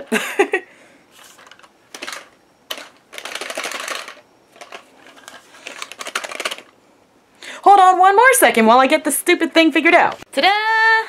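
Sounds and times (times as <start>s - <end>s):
plastic toy clicking and rattling: 1.4s - 6.7s.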